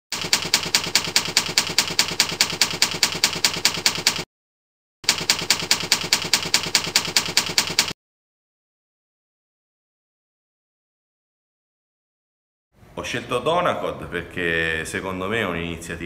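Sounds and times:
typewriter key clacks: 0:00.2 - 0:04.2, 0:05.1 - 0:08.0.

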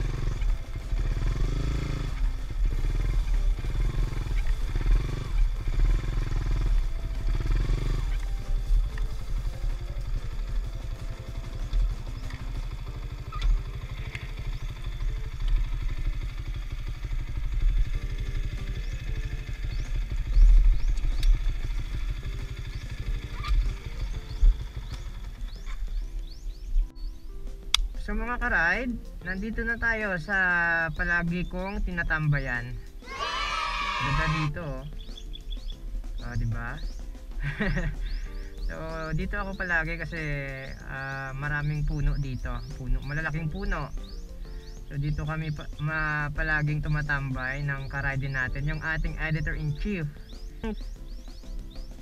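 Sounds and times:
faint background music: 0:00.0 - 0:52.0
motorcycle engine running: 0:00.0 - 0:52.0.

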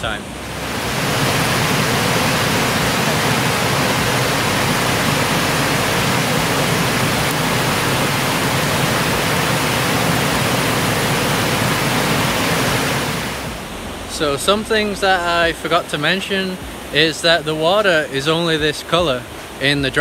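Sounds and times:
river water rushing over rocks: 0:00.0 - 0:20.0.

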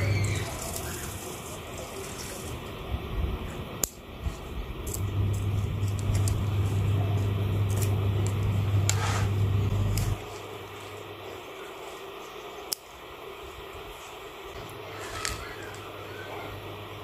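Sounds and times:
low engine-like rumble: 0:01.6 - 0:12.6.

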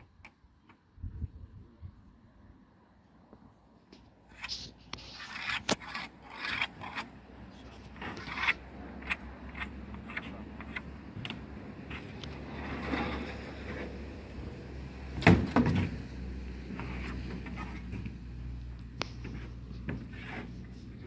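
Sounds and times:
plywood scraping and rubbing: 0:04.3 - 0:14.5, 0:16.6 - 0:18.2, 0:19.1 - 0:21.0.

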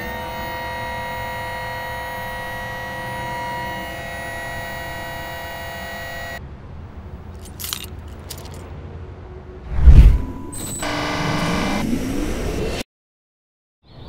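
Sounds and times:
high whining machine tones: 0:00.0 - 0:06.4, 0:09.8 - 0:12.8.

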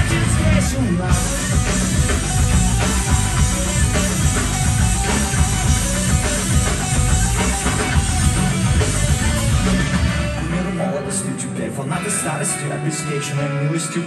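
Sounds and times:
driving drum beat: 0:00.0 - 0:11.2
electric guitars: 0:00.0 - 0:14.0
live rock band playing: 0:00.0 - 0:14.0.

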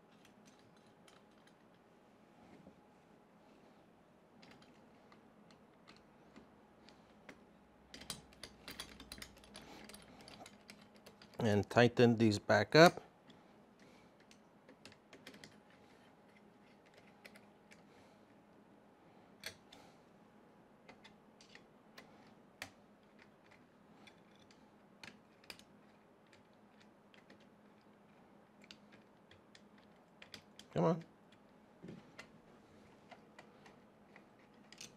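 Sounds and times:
faint metal clicks and ticks: 0:04.4 - 0:11.5, 0:20.8 - 0:34.9.

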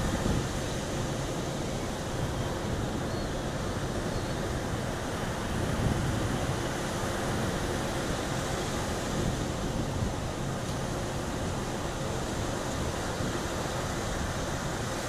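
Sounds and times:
wind buffeting microphone: 0:00.0 - 0:00.8, 0:05.4 - 0:06.7.

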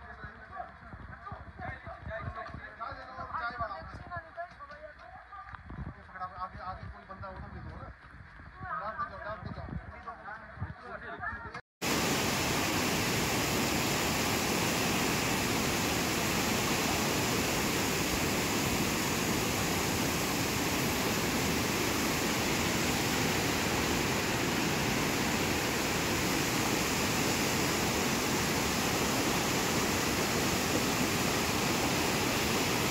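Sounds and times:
river water rushing: 0:11.8 - 0:32.9.

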